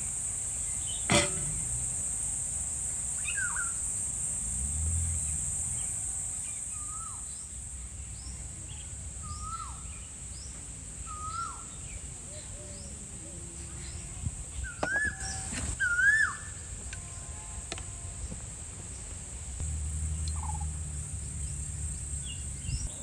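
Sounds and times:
high-pitched insect drone: 0.0 - 7.4, 19.6 - 23.0
faint bird chirps: 6.4 - 17.2, 20.1 - 23.0.

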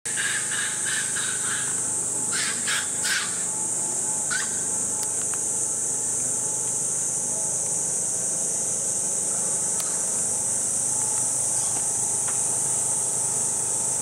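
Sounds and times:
short animal calls: 0.1 - 3.5
steady high-pitched hiss: 0.1 - 14.0.

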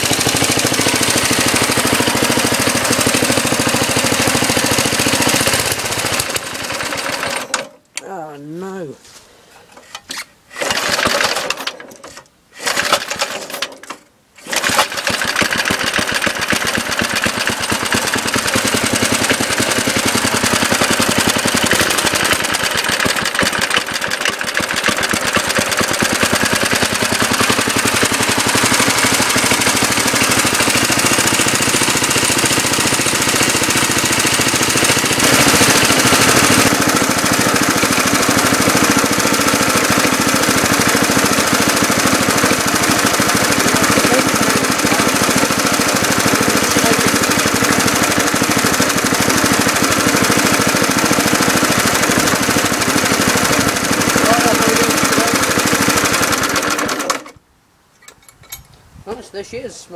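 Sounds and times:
mower engine starting and idling: 0.0 - 8.4, 9.5 - 57.4.

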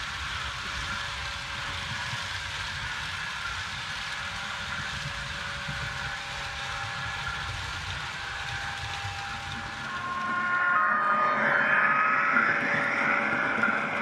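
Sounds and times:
model train wheels rumbling: 0.0 - 10.2.

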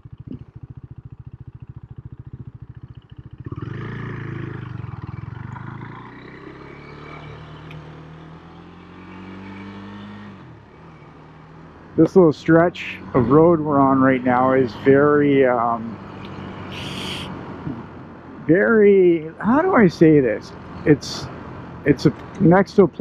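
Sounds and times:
motorcycle engine idling and accelerating: 0.0 - 23.0.

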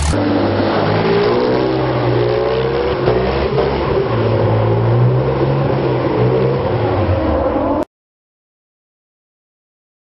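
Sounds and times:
buggy engine revving hard: 0.0 - 7.1.

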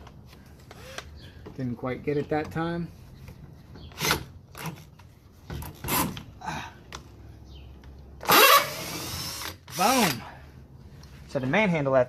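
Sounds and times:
drill whining: 8.2 - 10.2.

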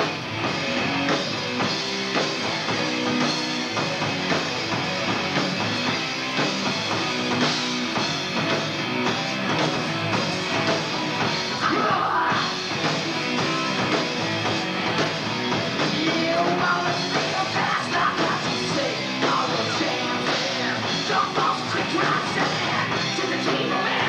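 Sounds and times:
hard rock band playing live: 0.0 - 24.0.

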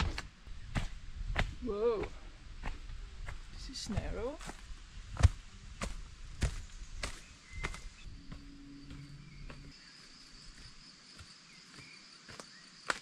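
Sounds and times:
footsteps on a trail: 0.0 - 13.0
high insect trill: 5.5 - 13.0.

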